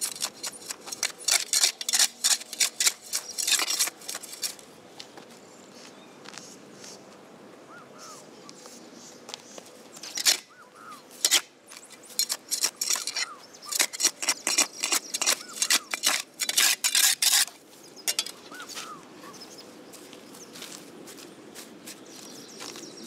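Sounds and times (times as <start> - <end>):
spade scraping and chopping soil: 0.0 - 4.6, 9.9 - 19.0.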